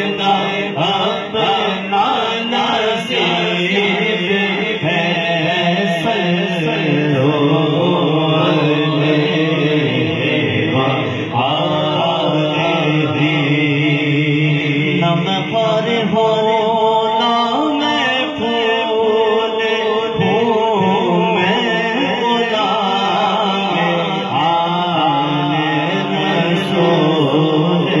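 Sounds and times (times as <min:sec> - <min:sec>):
person singing devotional chant: 0:00.0 - 0:28.0.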